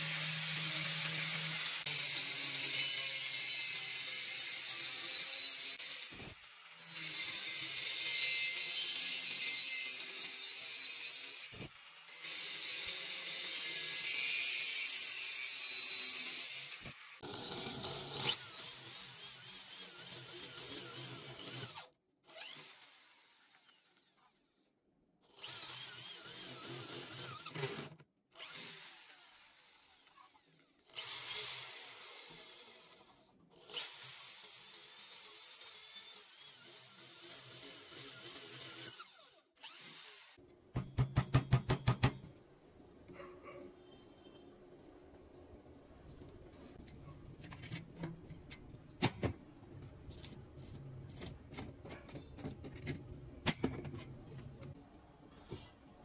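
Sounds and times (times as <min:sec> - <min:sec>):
angle grinder cutting steel: 0:00.0 - 0:06.1, 0:33.7 - 0:40.4
electric drill boring metal: 0:12.2 - 0:24.2, 0:25.4 - 0:40.4.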